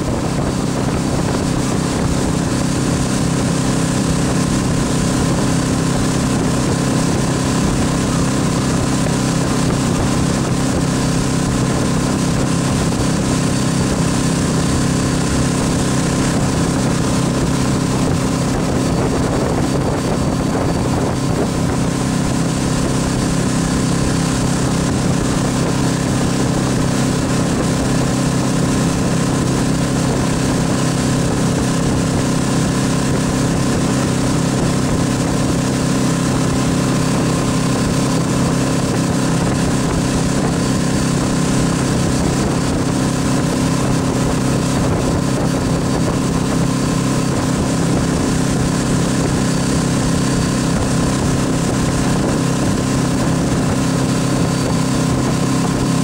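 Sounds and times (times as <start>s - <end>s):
boat engine running: 0.0s - 56.0s
churning boat wake: 0.0s - 56.0s.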